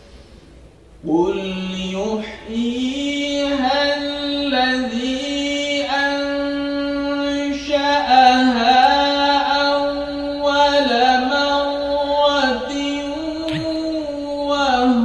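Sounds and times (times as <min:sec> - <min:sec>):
man reciting melodically: 0:01.0 - 0:15.0.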